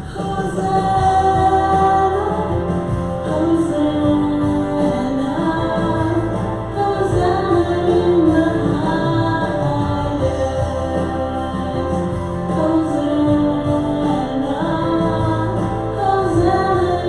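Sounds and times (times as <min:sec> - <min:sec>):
instrumental accompaniment: 0:00.0 - 0:17.0
woman singing worship song: 0:00.0 - 0:17.0.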